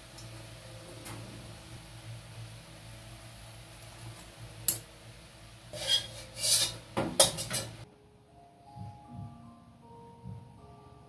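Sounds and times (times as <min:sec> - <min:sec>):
faint music notes: 0:00.0 - 0:11.0
metal utensils scraping a pot: 0:05.7 - 0:07.8.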